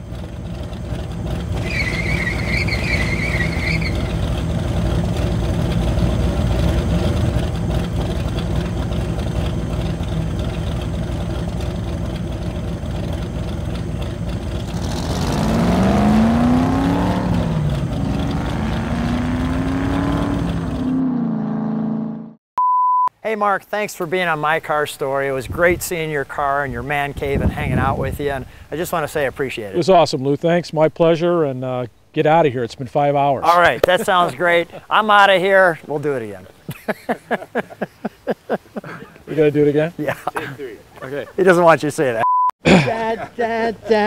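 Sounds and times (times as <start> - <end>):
car engine running: 0.0 - 22.4
high wavering squeal: 1.6 - 4.2.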